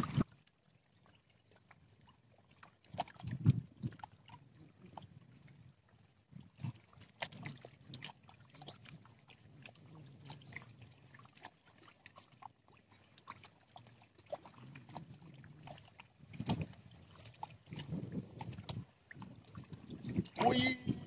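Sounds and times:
lake water lapping at bank: 0.0s - 21.0s.

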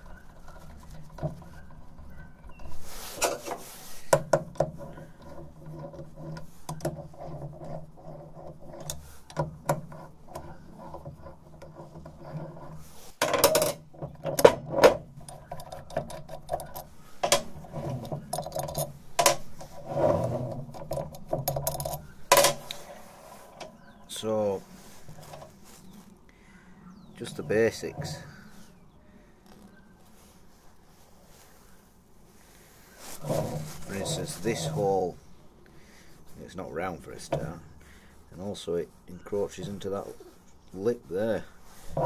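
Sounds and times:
metal parts clinking and scraping: 0.0s - 26.2s, 27.2s - 28.5s, 33.1s - 35.1s.

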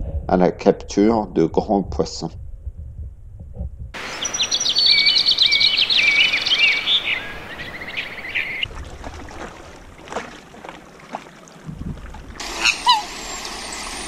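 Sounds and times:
songbird trilling: 4.0s - 8.6s, 12.5s - 14.0s.

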